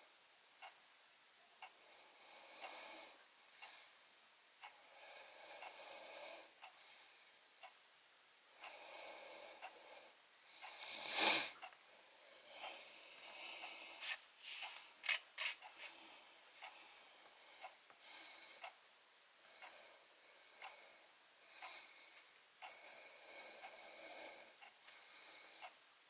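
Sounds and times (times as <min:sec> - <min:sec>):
soft breathing: 0:01.6 - 0:07.7, 0:08.5 - 0:18.8, 0:19.4 - 0:25.8.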